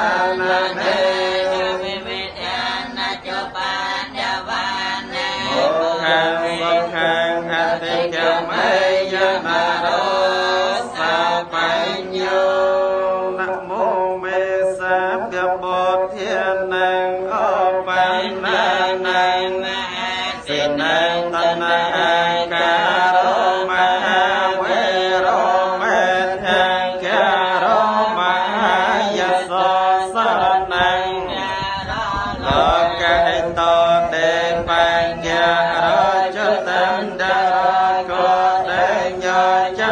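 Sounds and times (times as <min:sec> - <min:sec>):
monks chanting together: 0:00.0 - 0:39.9.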